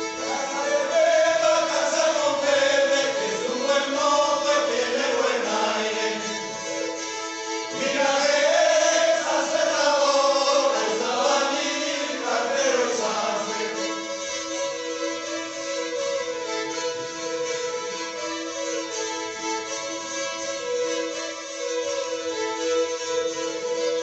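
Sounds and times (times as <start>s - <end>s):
bowed folk fiddles: 0.0s - 24.0s
men singing in unison: 0.2s - 6.7s, 7.7s - 13.9s.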